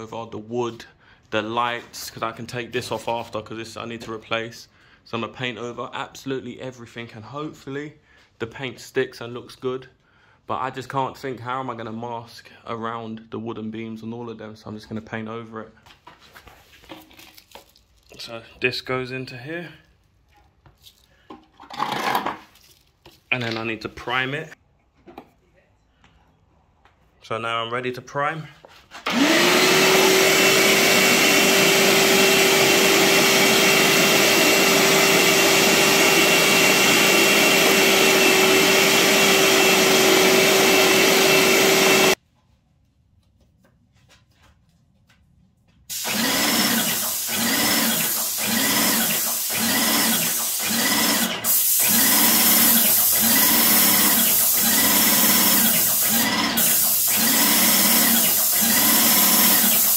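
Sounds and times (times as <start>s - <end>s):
paint sprayer pump running: 29.0s - 42.2s, 45.9s - 59.9s.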